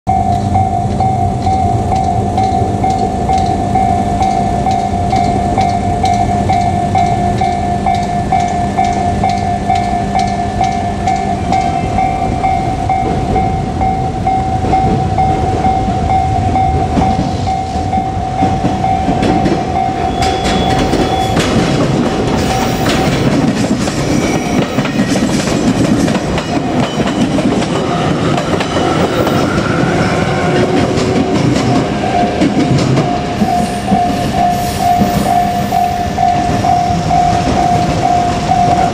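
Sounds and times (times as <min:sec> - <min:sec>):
level crossing alarm bell: 0:00.1 - 0:23.3, 0:26.1 - 0:38.9
train wheels clattering over rail joints: 0:16.8 - 0:35.4.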